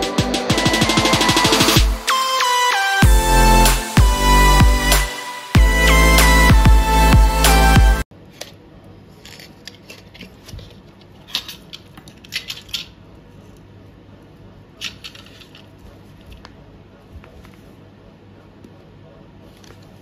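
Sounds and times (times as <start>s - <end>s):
small items clicking and clinking: 14.8s - 15.8s.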